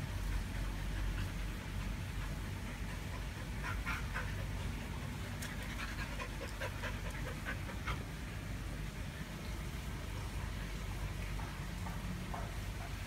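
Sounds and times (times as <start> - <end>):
dog panting: 0.0 - 8.3.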